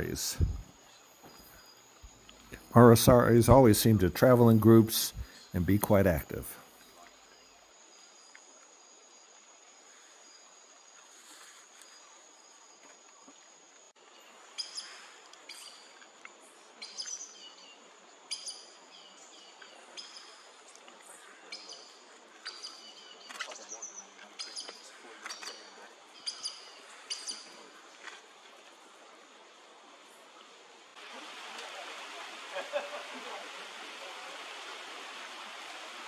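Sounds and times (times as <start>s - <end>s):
bird sharp high calls: 21.5s - 27.6s.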